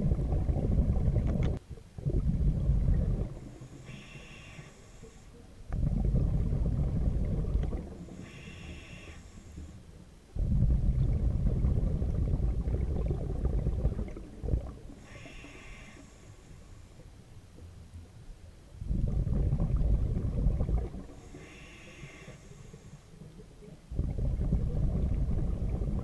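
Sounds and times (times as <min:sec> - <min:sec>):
bubbling underwater exhalation: 0:00.0 - 0:03.6, 0:05.7 - 0:08.2, 0:10.4 - 0:15.2, 0:18.8 - 0:21.3, 0:23.9 - 0:26.0
hissing regulator inhalation: 0:03.6 - 0:05.4, 0:08.0 - 0:09.8, 0:15.0 - 0:16.9, 0:21.1 - 0:23.2.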